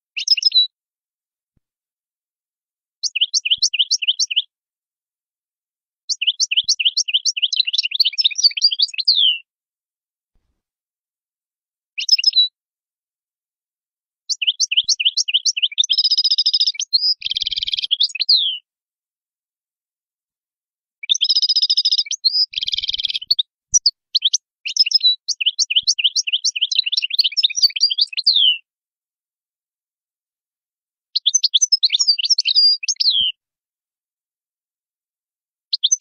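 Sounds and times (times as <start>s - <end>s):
goldfinch twittering song: 0.1s - 0.7s, 3.0s - 4.5s, 6.1s - 9.4s, 12.0s - 12.5s, 14.3s - 18.6s, 21.0s - 28.6s, 31.2s - 33.4s, 35.7s - 36.0s.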